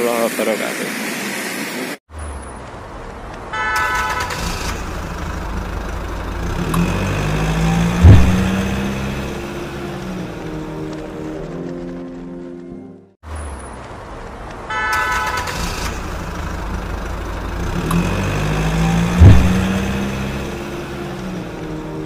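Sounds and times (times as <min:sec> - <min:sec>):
vehicle horn: 0:03.5 - 0:04.5, 0:14.7 - 0:15.7
vehicle engine running: 0:04.3 - 0:12.8, 0:15.4 - 0:22.0
loud low blast: 0:07.5 - 0:10.2, 0:19.0 - 0:21.4.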